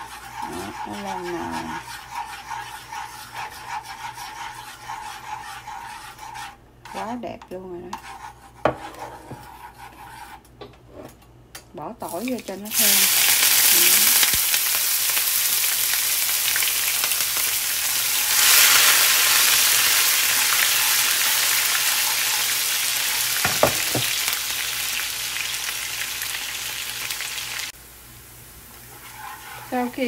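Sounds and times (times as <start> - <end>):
garlic sizzling in hot oil: 12.0 - 30.0.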